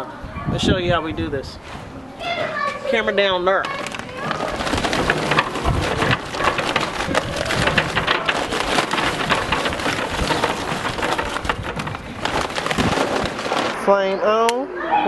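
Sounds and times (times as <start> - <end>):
charcoal pouring into metal barrel: 3.6 - 13.9.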